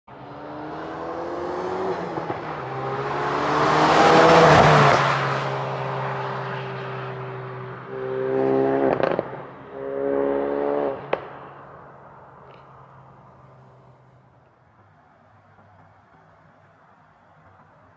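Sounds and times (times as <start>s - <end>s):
car engine revving: 0.1s - 12.2s
exhaust crack: 7.7s - 13.6s.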